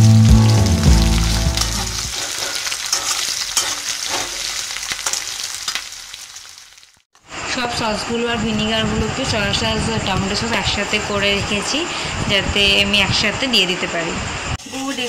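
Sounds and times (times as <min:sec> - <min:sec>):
background music: 0:00.0 - 0:02.1
onions sizzling in oil: 0:00.0 - 0:07.1, 0:14.6 - 0:15.0
metal spatula scraping a pan: 0:02.1 - 0:05.4.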